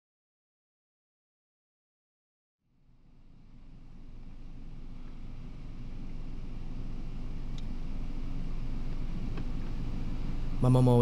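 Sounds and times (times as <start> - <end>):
car road and engine rumble: 3.0 - 11.0.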